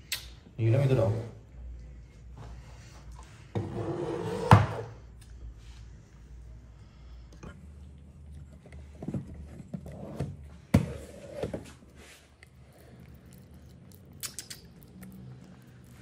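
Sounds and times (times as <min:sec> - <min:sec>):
cat chewing and licking: 0:11.8 - 0:16.0.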